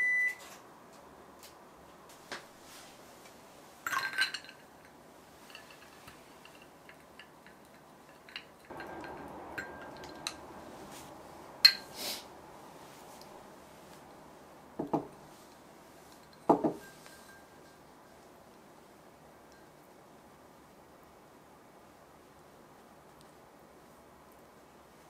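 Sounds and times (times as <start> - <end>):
soft steady hiss: 0.0 - 25.0
utensil clinking on glass bowl: 3.8 - 12.0, 15.5 - 18.2.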